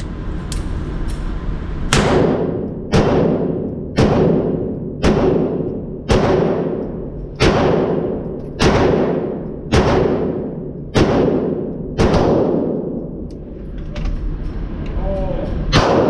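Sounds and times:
pistol shots echoing: 1.9s - 13.0s, 15.7s - 16.0s.

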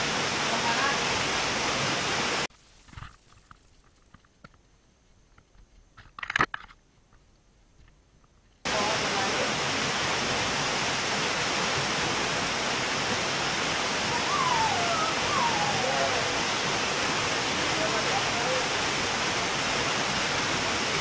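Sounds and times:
waterfall rushing into pool: 0.0s - 2.5s, 8.7s - 21.0s
person calling out: 14.3s - 16.4s.

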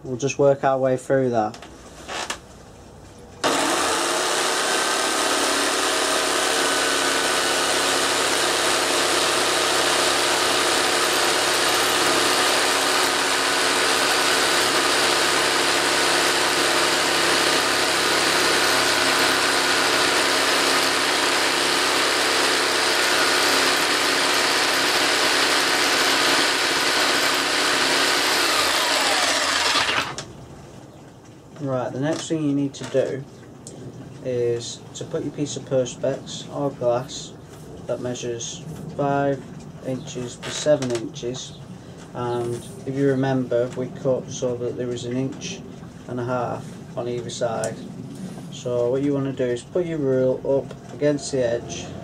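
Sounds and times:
jigsaw sawing wood: 2.1s - 2.4s, 3.4s - 30.3s
motor winding down: 3.4s - 30.3s.

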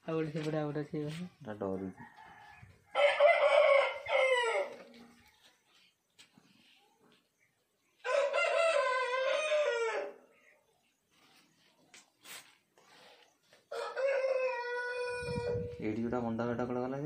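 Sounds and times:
roosters crowing: 2.0s - 5.0s, 8.0s - 10.4s, 13.7s - 15.8s.

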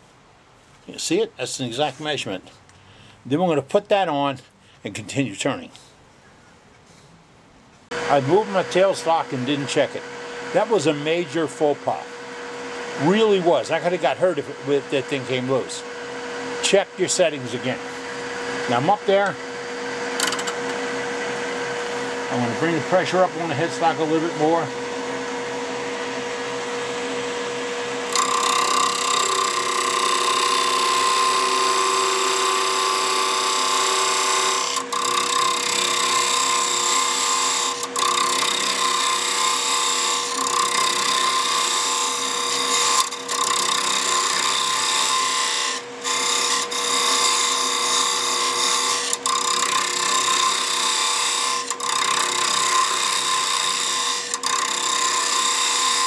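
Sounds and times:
lathe motor whine: 7.9s - 56.0s
turning tool cutting wood hiss: 28.0s - 56.0s.

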